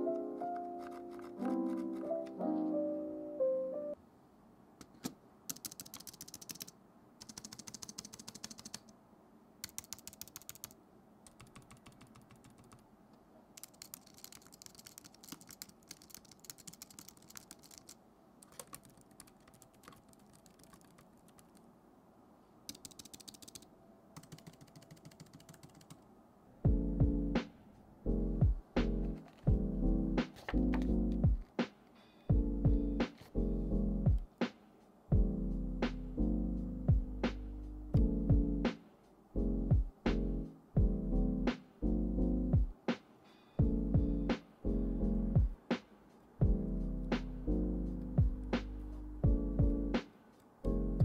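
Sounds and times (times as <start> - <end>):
keyboard key clicks: 4.9 - 8.9, 9.6 - 12.8, 13.6 - 21.6, 22.7 - 26.0.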